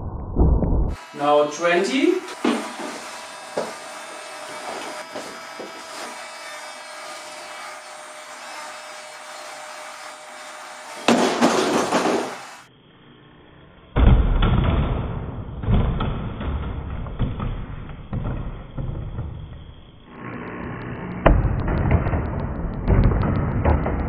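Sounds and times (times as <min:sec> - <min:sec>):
heavy low rumbling thud: 0:21.3 - 0:24.0.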